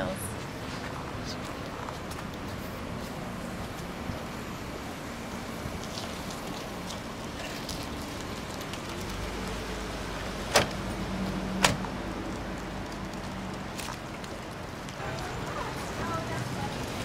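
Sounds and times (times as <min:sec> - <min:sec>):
van doors slamming: 0:10.4 - 0:10.8, 0:11.6 - 0:11.9.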